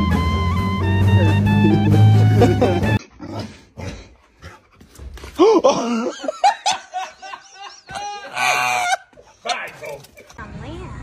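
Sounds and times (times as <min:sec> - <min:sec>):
person laughing hard: 0:01.1 - 0:03.0, 0:05.4 - 0:09.1.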